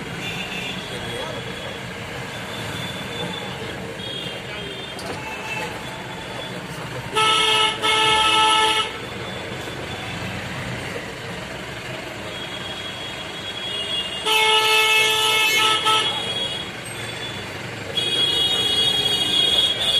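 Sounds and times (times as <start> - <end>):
street traffic: 0.0 - 19.9
car horn honking: 2.6 - 5.8, 7.1 - 9.1, 12.3 - 19.9.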